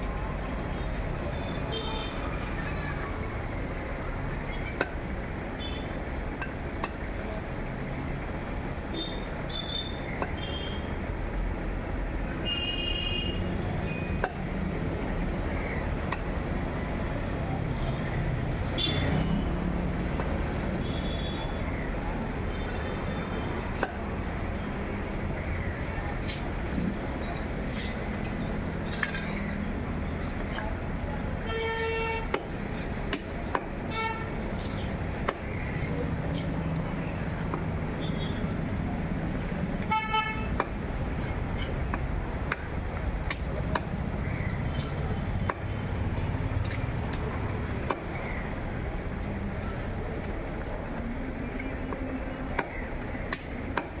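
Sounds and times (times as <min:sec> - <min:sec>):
low rumble of market hubbub: 0:00.0 - 0:54.0
street traffic hum: 0:00.0 - 0:54.0.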